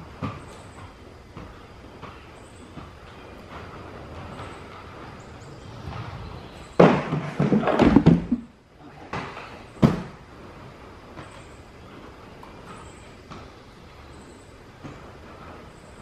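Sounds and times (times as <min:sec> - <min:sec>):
inline skates rolling on concrete: 0:00.0 - 0:14.0
skate grinding along metal pipe: 0:03.6 - 0:08.6
skate hitting wooden grind box: 0:06.4 - 0:10.2.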